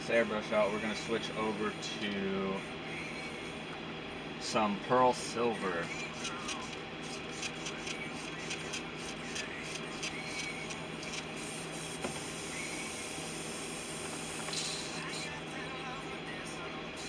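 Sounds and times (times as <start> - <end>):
low steady hum: 0.0 - 17.0
airbrush spraying hiss: 11.4 - 15.3.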